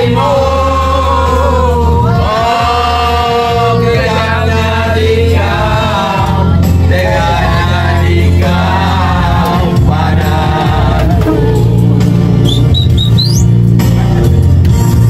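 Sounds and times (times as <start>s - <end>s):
voices singing long notes: 0.0s - 13.6s
steady bass: 0.0s - 15.0s.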